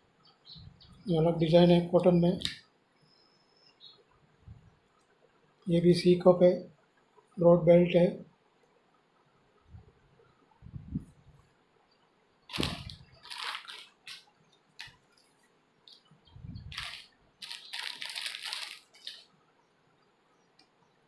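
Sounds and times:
cloth rustling: 12.5s - 16.0s, 16.6s - 19.3s.

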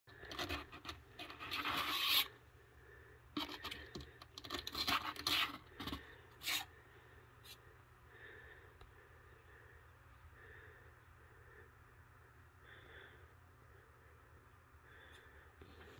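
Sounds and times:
kitten claws scratching cardboard: 0.1s - 2.4s, 3.4s - 6.7s.

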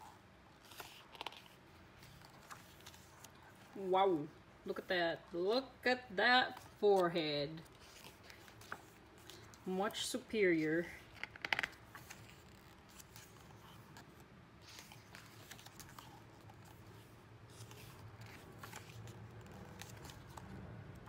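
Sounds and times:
page turning: 0.6s - 3.7s, 6.5s - 9.6s, 11.0s - 20.6s
paper rustling and sliding: 6.6s - 9.6s, 11.1s - 20.6s.

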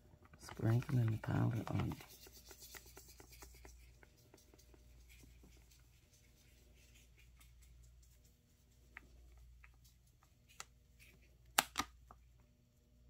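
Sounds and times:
powder grains ticking on paper: 0.3s - 10.8s.

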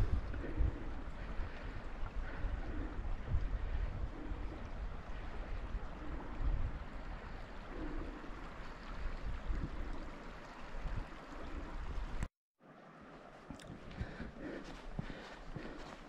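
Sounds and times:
wind buffeting microphone: 0.0s - 12.3s
running water: 0.0s - 16.0s.

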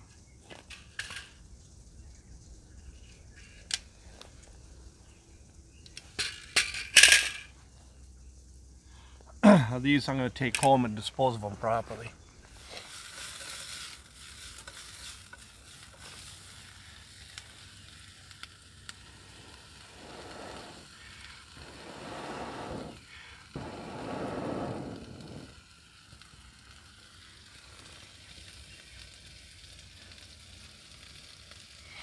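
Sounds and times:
low hiss: 0.0s - 32.0s
faint crackles: 0.3s - 8.1s, 8.8s - 32.0s
air puffs through tube: 18.9s - 25.8s.

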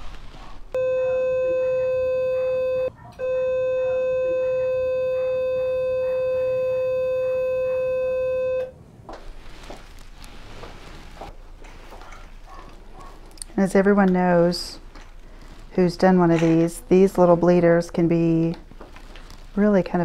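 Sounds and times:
steady electronic beep: 0.8s - 8.7s.

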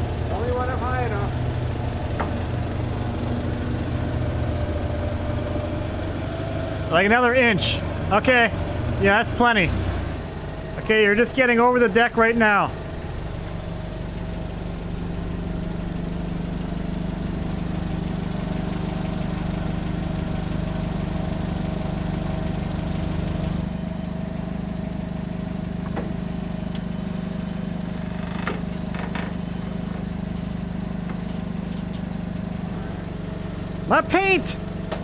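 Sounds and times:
forklift engine running: 0.0s - 35.0s.

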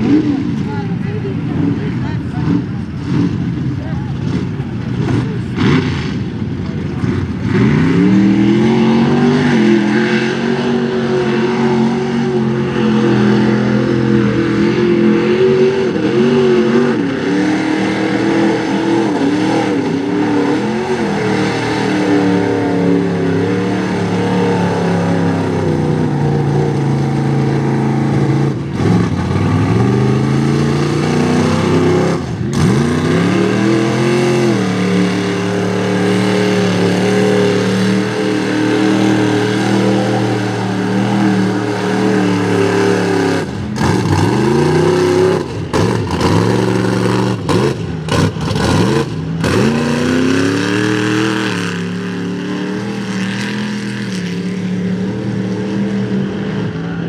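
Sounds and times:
truck engines revving hard: 0.0s - 57.0s.

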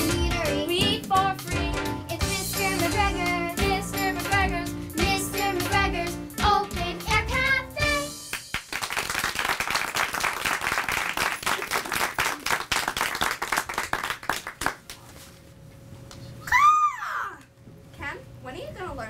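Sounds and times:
children singing with accompaniment: 0.0s - 8.3s
audience applause: 8.4s - 15.0s.

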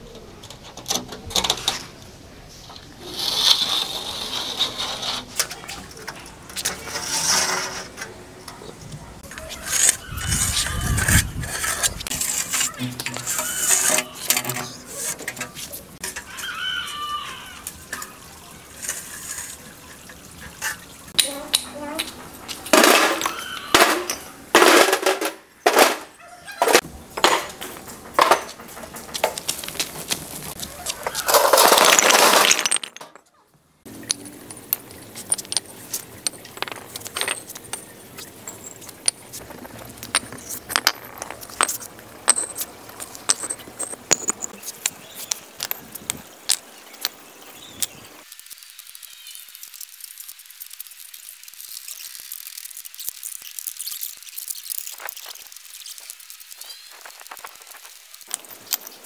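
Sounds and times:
bricks clanking into steel wheelbarrow: 3.0s - 16.3s, 18.7s - 33.3s, 33.9s - 48.0s
bricks knocking together: 26.8s - 33.3s, 33.9s - 48.0s
bricks tapping on concrete: 33.9s - 48.0s.

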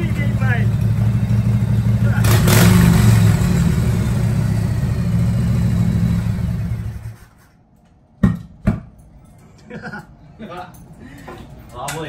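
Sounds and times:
motorcycle engine revving high: 0.0s - 7.2s.

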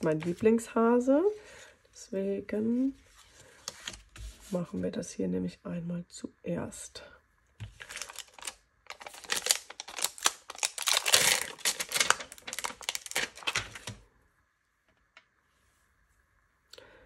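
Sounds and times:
plastic sheet crinkling: 0.0s - 0.6s, 7.6s - 14.0s.

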